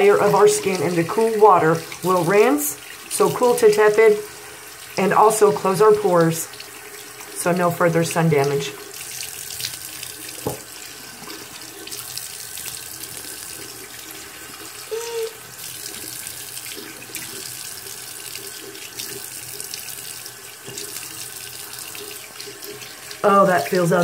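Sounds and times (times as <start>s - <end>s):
tap running into sink: 9.7s - 12.0s, 20.6s - 21.2s
person humming: 14.9s - 15.4s.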